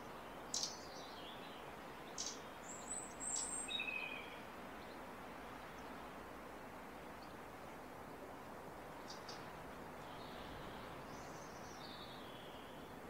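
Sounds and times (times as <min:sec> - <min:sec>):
steady outdoor hiss: 0:00.0 - 0:13.0
wild birds chirping and whistling: 0:00.5 - 0:05.0, 0:09.1 - 0:12.9.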